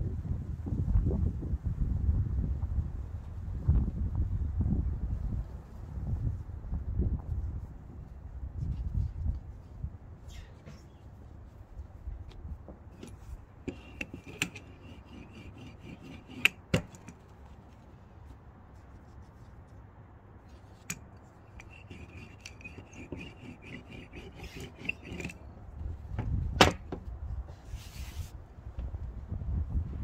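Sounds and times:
wind rumble on microphone: 0.0s - 10.5s, 11.2s - 13.5s, 24.2s - 30.0s.

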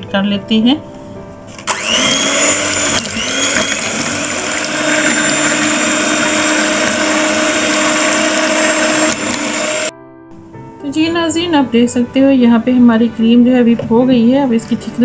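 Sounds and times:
electric hand mixer whining: 1.5s - 9.9s.

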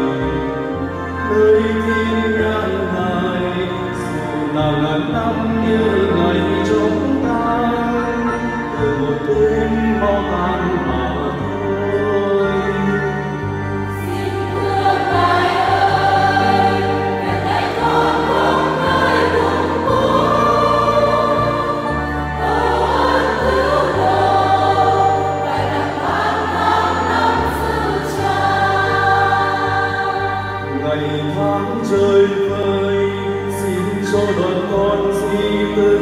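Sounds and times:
church choir singing a hymn: 0.0s - 36.0s
held bass notes: 0.0s - 36.0s.

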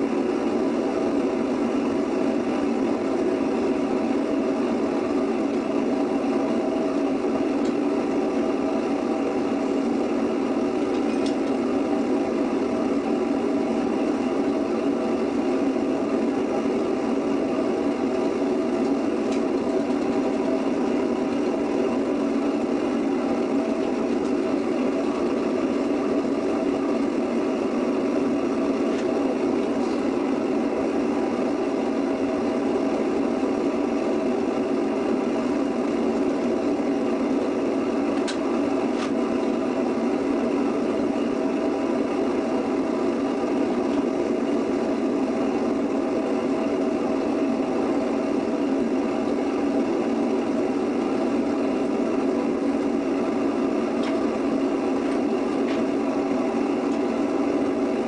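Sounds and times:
furnace burner rushing: 0.0s - 58.0s.

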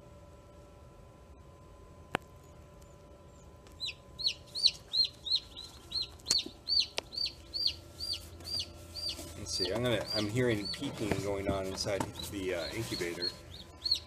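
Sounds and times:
chick peeping: 3.4s - 14.0s.

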